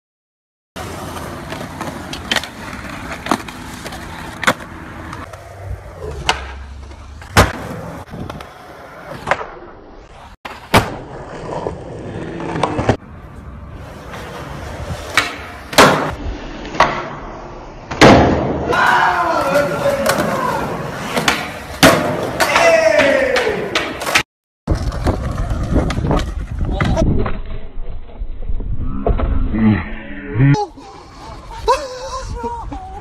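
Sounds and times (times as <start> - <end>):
skateboard wheels rolling on pavement: 0.8 - 28.7
skateboard clacks: 21.0 - 27.3.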